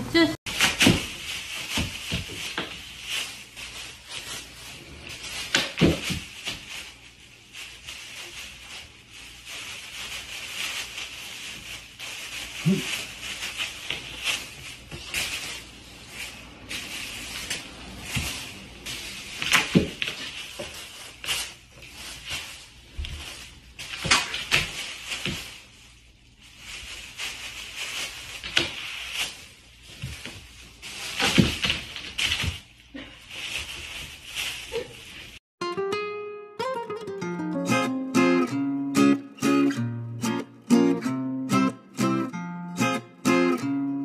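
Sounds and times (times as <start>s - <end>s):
bag rustling and scrabbling: 0.5s - 35.4s.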